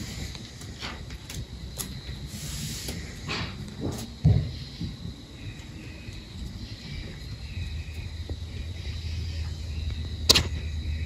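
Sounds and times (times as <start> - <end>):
high steady whine: 0.0 - 11.0.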